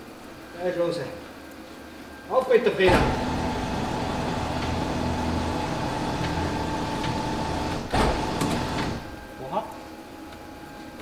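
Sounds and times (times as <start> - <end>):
electric pump motor humming: 2.9 - 9.3.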